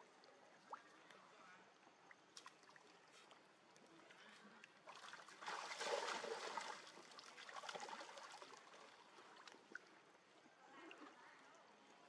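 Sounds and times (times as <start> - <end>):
water splashing and trickling: 2.0 - 10.0.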